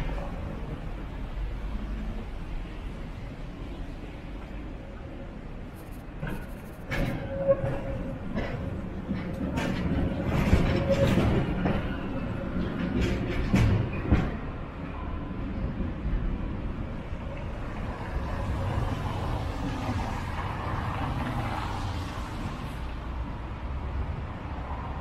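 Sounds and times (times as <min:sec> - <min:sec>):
cars driving past on wet road: 0:17.4 - 0:25.0.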